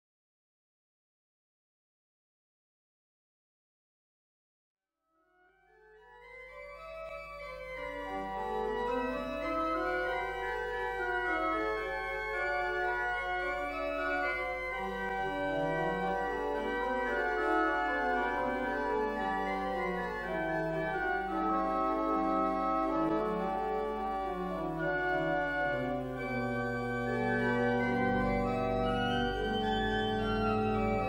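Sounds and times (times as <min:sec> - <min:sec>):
organ playing held chords: 0:06.0 - 0:31.0
organ bass line: 0:06.5 - 0:31.0.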